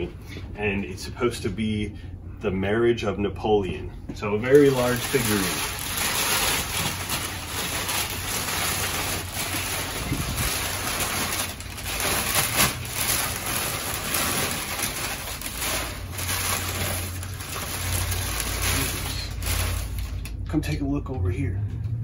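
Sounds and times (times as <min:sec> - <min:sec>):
steady low hum: 0:00.0 - 0:22.0
packing paper rustling and crinkling: 0:04.4 - 0:20.4.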